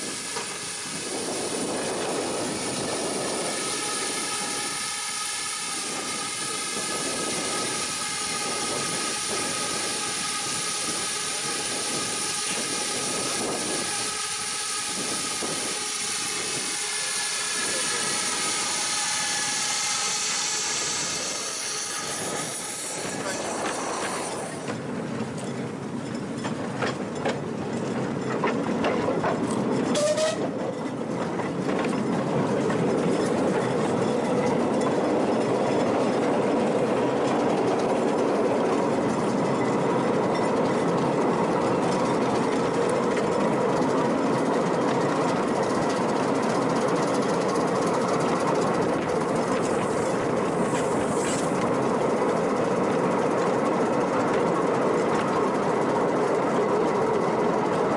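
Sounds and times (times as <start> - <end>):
wheel squeal: 0.0 - 26.6, 29.7 - 31.0, 44.3 - 51.6
train wheels rumbling on track: 0.0 - 57.9.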